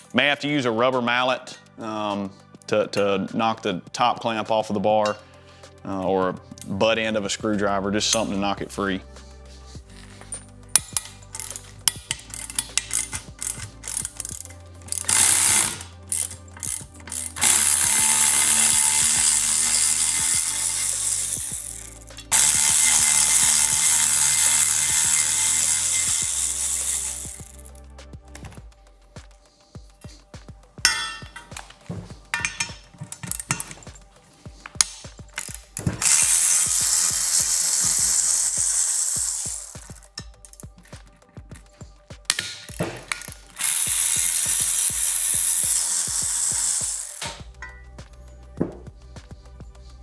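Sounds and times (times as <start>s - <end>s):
ratchet whirring: 10.0s - 27.8s, 32.4s - 34.0s, 34.8s - 40.9s, 42.3s - 47.8s
ratchet clicking: 10.2s - 27.8s, 32.4s - 34.0s, 34.7s - 40.9s, 42.3s - 47.9s
metal clinks: 30.9s - 31.6s, 32.3s - 34.1s.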